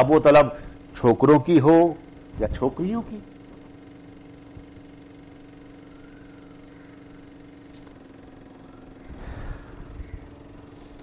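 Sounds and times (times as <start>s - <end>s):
low background hum: 0.0s - 11.0s
held tone shifting in pitch: 5.2s - 11.0s.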